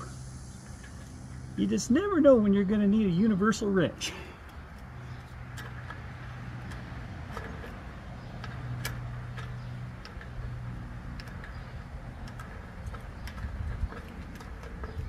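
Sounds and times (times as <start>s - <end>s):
wrench clicking on bolt: 4.4s - 15.0s.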